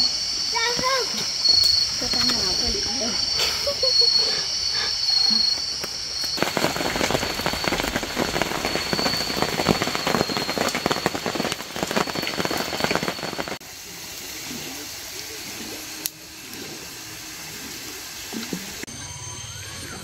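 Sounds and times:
high-pitched drone: 0.0 - 13.6, 14.5 - 20.0
rain pattering on a tarp: 5.7 - 16.8.

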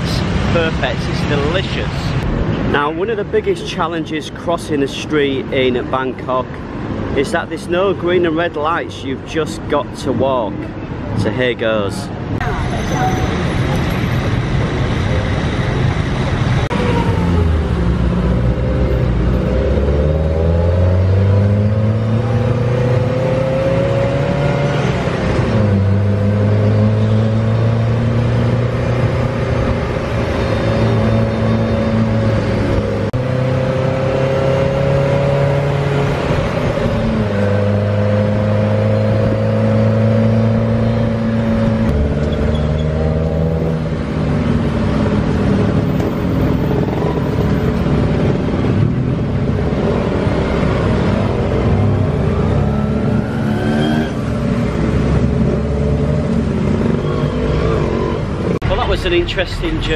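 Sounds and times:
auto rickshaw engine: 0.0 - 59.9
road noise: 0.0 - 59.9.

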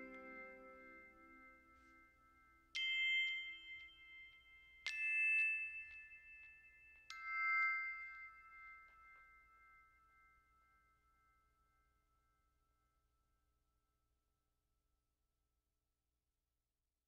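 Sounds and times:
bell-like chime notes: 0.0 - 11.5.

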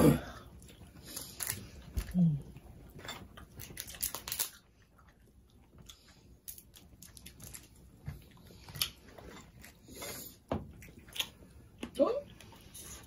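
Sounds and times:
chewing: 0.5 - 11.6
shellfish shells cracking by hand: 3.5 - 4.6.

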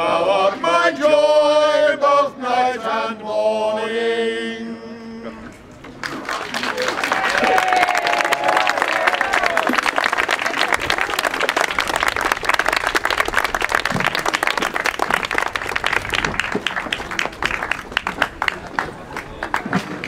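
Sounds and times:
crowd applauding: 6.0 - 20.0.

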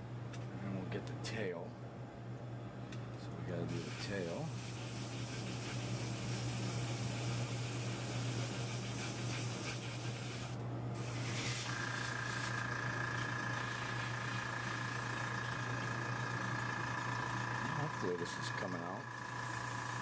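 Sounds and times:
airbrush spraying hiss: 3.7 - 12.6, 19.2 - 20.0.

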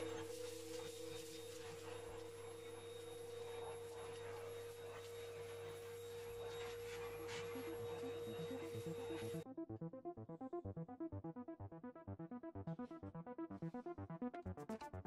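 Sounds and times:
vacuum cleaner running: 0.0 - 9.4.

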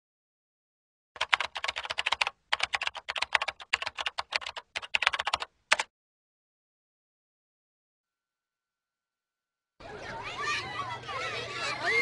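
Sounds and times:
rapid keyboard typing clicks: 1.2 - 5.9.

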